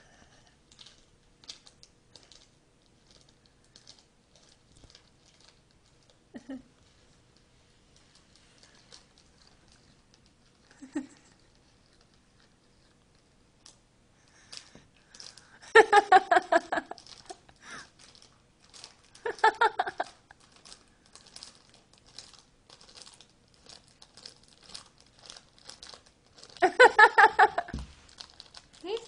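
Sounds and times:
plastic bags crinkling: 0.7 - 6.2, 6.8 - 12.2, 14.4 - 15.6, 16.3 - 29.0
person laughing: 6.4 - 6.7, 10.7 - 11.3, 15.6 - 17.0, 19.2 - 20.2, 26.6 - 27.8.

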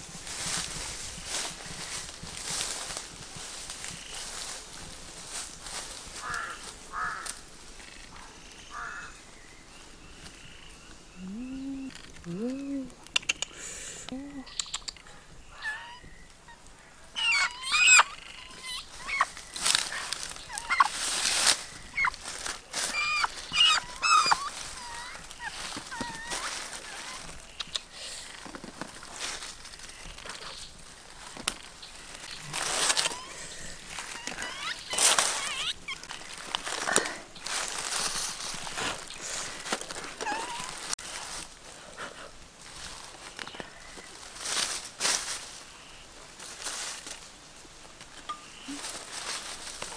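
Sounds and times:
rustling: 0.0 - 9.1, 16.5 - 49.9
short chirping calls: 14.4 - 16.6, 17.2 - 22.2, 22.8 - 28.4, 31.8 - 36.4
chicken squawking: 15.5 - 16.1, 17.1 - 27.7, 32.5 - 36.2.

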